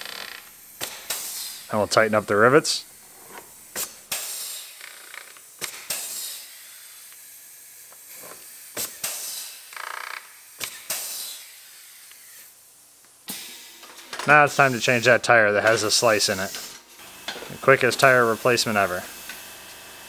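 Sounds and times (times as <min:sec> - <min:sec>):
short hiss of air: 0:00.8 - 0:01.8, 0:03.5 - 0:04.9, 0:05.6 - 0:07.4, 0:08.1 - 0:09.7, 0:10.4 - 0:12.5, 0:13.3 - 0:20.0.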